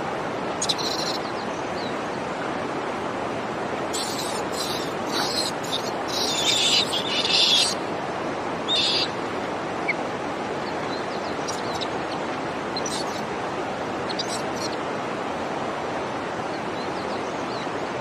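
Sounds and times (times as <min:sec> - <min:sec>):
hissing outdoor background noise: 0:00.0 - 0:18.0
baby monkey squealing: 0:00.6 - 0:01.2, 0:04.0 - 0:07.8, 0:08.7 - 0:09.1, 0:11.5 - 0:11.9, 0:12.8 - 0:13.2, 0:14.1 - 0:14.8.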